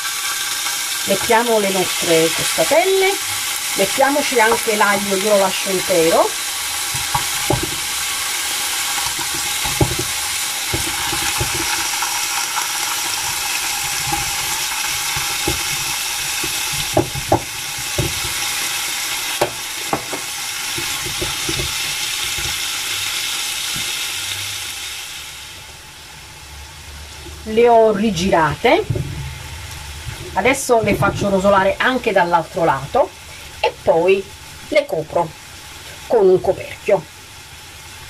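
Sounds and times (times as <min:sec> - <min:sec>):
meat sizzling in frying pan: 0:00.0 - 0:38.0
sharp clicks and knocks: 0:09.0 - 0:11.9, 0:13.3 - 0:18.5.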